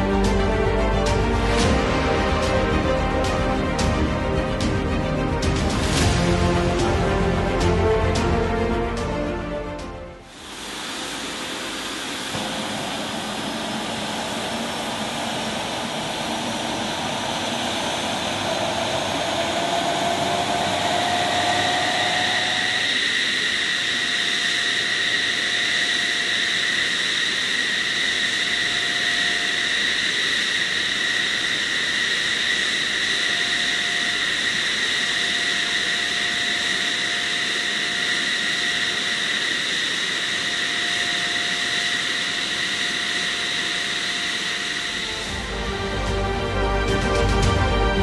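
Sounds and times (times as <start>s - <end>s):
jet turbine whine: 0.0s - 48.0s
loud rushing hiss: 10.2s - 48.0s.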